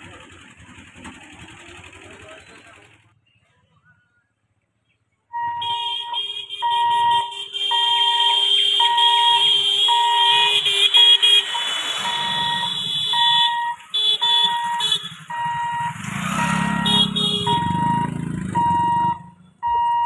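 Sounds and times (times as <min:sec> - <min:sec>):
motorcycle engine running: 0:00.0 - 0:03.2, 0:10.1 - 0:19.6
level-crossing warning beeps: 0:05.3 - 0:20.0
shrill electronic tone: 0:05.4 - 0:13.8.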